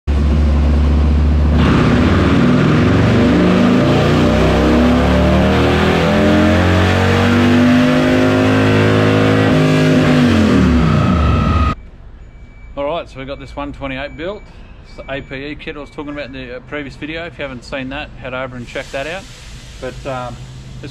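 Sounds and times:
motorcycle engine revving: 0.1 - 11.8.

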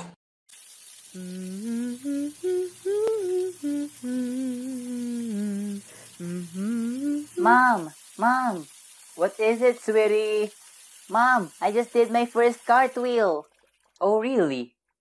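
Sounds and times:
woman humming: 1.2 - 7.9.

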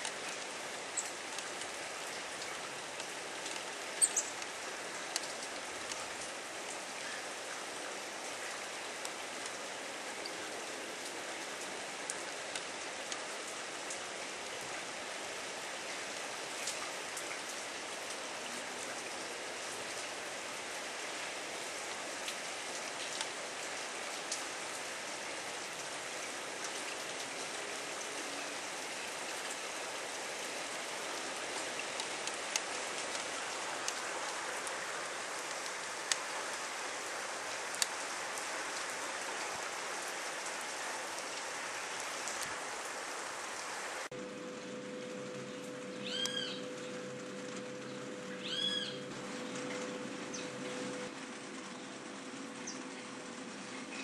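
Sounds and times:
water drips ticking: 0.0 - 14.9, 22.2 - 28.2, 29.0 - 42.6
steady rain hiss: 0.0 - 54.0.

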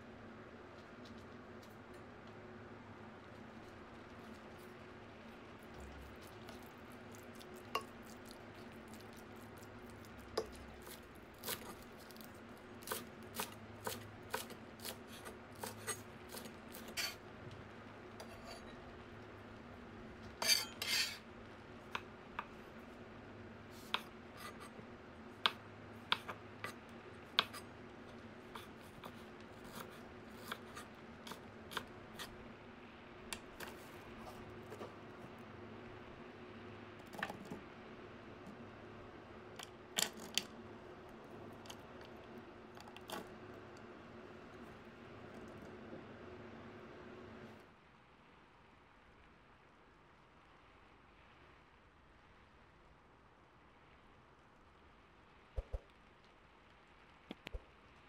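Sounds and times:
faint steady hum: 0.0 - 58.0
knife chopping lettuce on wood: 10.3 - 17.2.

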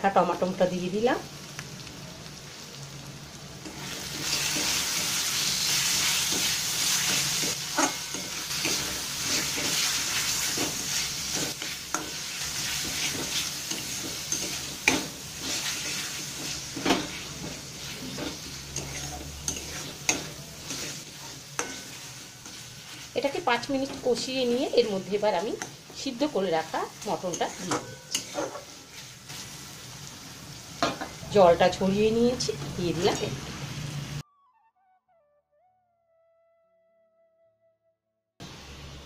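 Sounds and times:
masala sizzling in oil: 0.0 - 34.2
spatula scraping and knocking pan: 3.6 - 26.1, 27.0 - 29.6.

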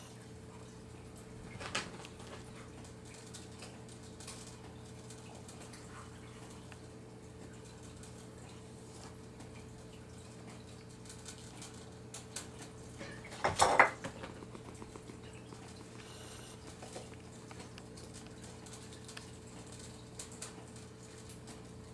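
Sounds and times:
steady low hum: 0.0 - 21.9
bowl clatter: 13.0 - 16.0
kibble clicking against bowl: 14.0 - 16.0.

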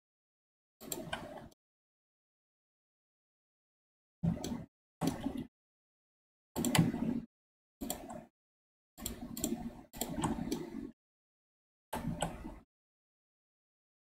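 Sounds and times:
mouse and keyboard clicking: 0.8 - 1.6, 6.6 - 7.1, 7.8 - 8.3, 9.0 - 10.8.

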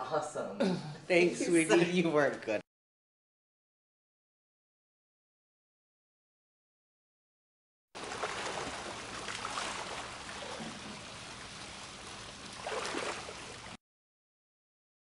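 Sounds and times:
pool water splashing and lapping: 8.0 - 13.8.

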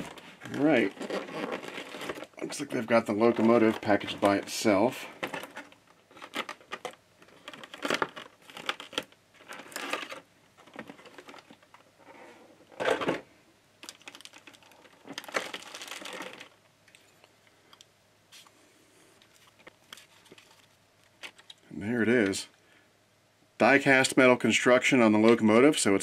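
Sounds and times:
plastic packaging crinkling: 0.0 - 11.9, 13.8 - 17.1.

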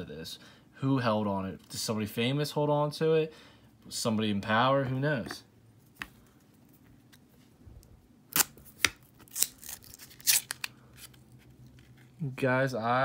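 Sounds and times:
paper wrappers rustling: 9.2 - 12.3.

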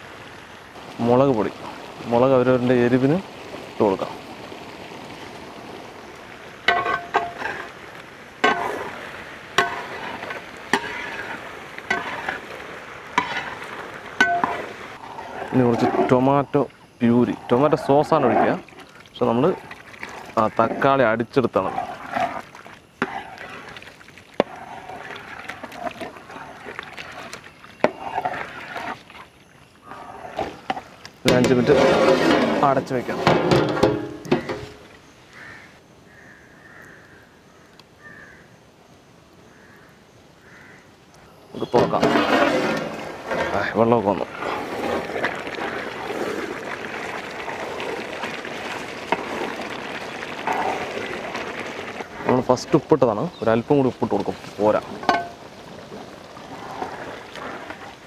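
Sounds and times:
sauce sizzling and bubbling in pot: 0.0 - 38.4, 40.4 - 58.0
ladle stirring: 6.7 - 7.7, 8.4 - 34.8, 41.6 - 53.0, 54.4 - 58.0.

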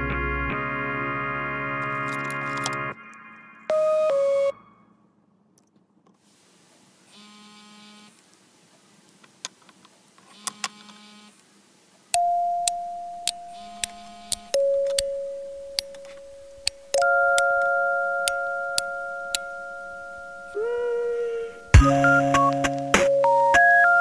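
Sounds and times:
scissors snipping clicks: 12.7 - 15.1.

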